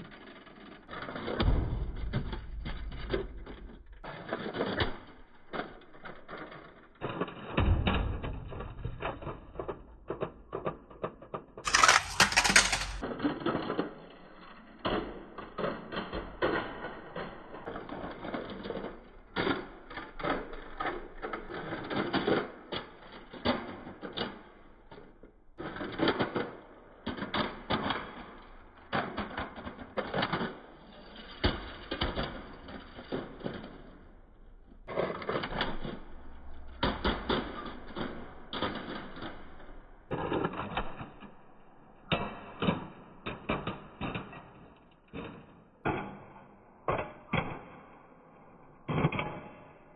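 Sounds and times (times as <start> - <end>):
model car clattering on concrete: 0.1 - 14.0.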